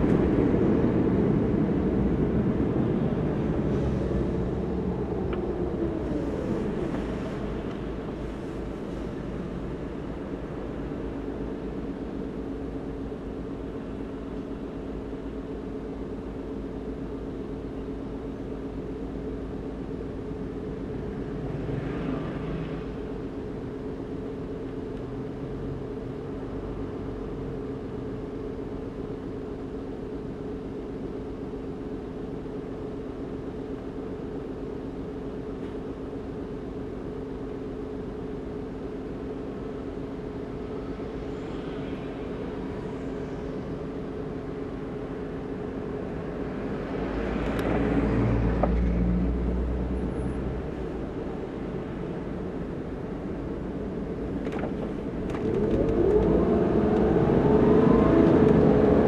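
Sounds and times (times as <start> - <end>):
car idling hum: 0.0 - 59.0
passing vehicle engine: 21.3 - 23.1, 46.1 - 51.1, 55.4 - 59.0.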